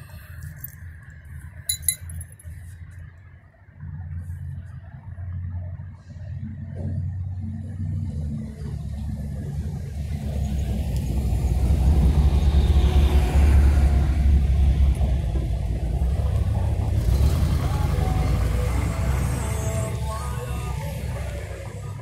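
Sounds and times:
car driving past: 10.6s - 15.6s.

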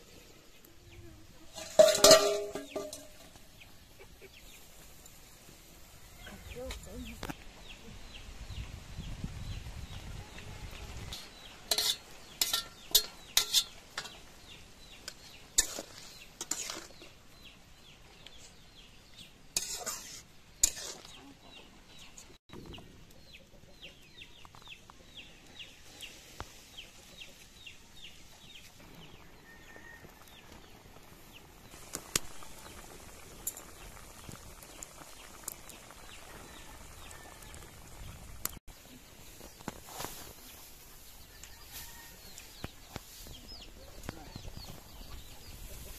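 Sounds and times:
metal spatula clinking and scraping: 1.5s - 3.4s, 11.1s - 14.2s, 15.0s - 17.2s, 19.6s - 21.2s.

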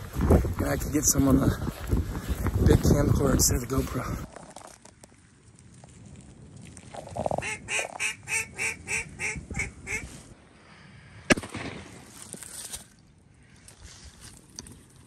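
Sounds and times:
duck quacking: 7.4s - 10.1s
sharp crack: 11.3s - 12.7s.

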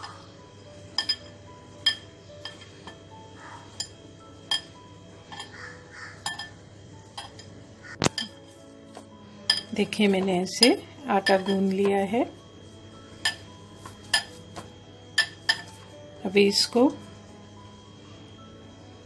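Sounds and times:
hand clinking glass bowl: 0.9s - 3.0s, 3.8s - 5.6s, 6.2s - 8.6s, 9.4s - 12.1s, 13.2s - 14.4s, 15.2s - 15.8s.

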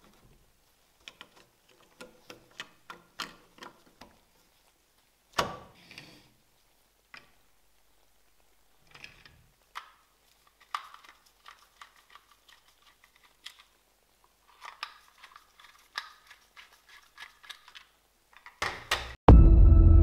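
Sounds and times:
plastic model parts clicking: 8.9s - 13.8s, 14.5s - 19.1s.

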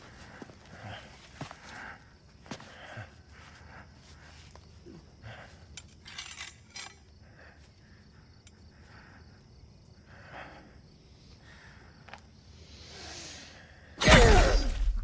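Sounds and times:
metallic clinks: 5.6s - 7.1s.

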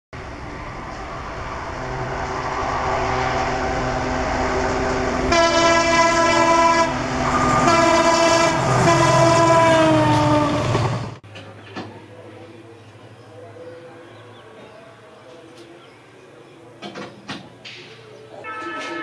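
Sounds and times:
locomotive engine rumble: 0.2s - 18.5s
locomotive horn blasts: 5.3s - 10.6s, 18.4s - 19.0s.

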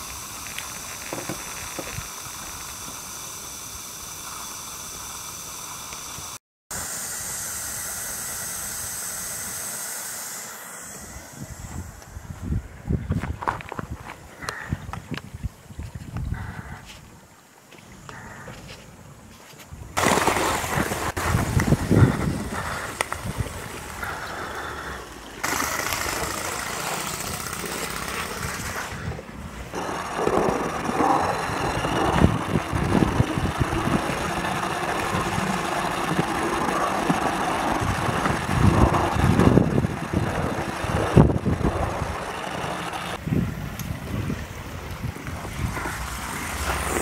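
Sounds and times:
model steam locomotive running: 0.0s - 12.1s, 21.2s - 43.2s.

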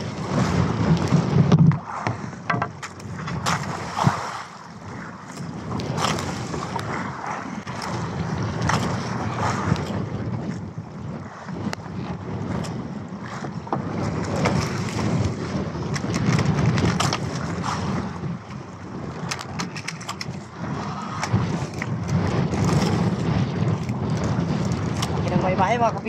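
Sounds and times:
sea noise: 0.0s - 26.0s
wind buffeting microphone: 0.0s - 26.0s
handline clicks and knocks: 19.2s - 20.4s.

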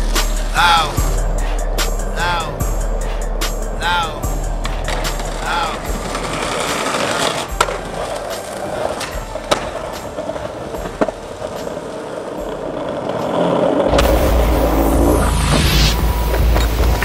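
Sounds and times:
skateboard clacks: 4.5s - 14.0s
skateboard wheels rumbling on tiles: 4.5s - 14.7s, 15.9s - 17.0s
skateboard grinding on stone ledge: 4.5s - 17.0s.

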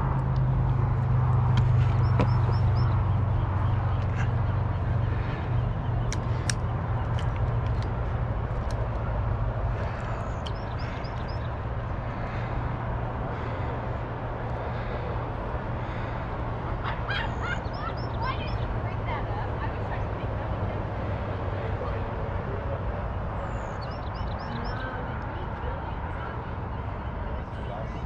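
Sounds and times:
outdoor background rumble: 0.0s - 28.0s
high bird calls: 1.7s - 7.4s, 9.7s - 11.6s, 16.8s - 19.2s.

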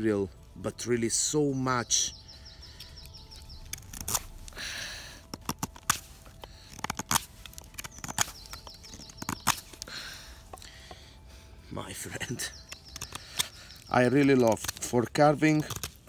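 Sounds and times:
knife shaving wood: 2.7s - 11.0s, 12.1s - 16.0s.

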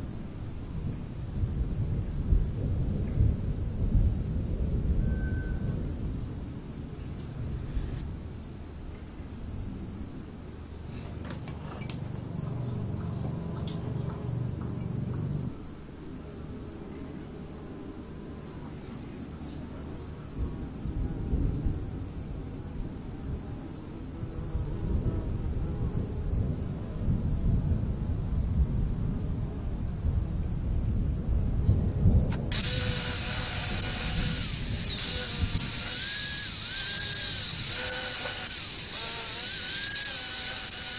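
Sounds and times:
insects chirring: 0.0s - 40.9s
power tool high whine: 32.4s - 40.9s.

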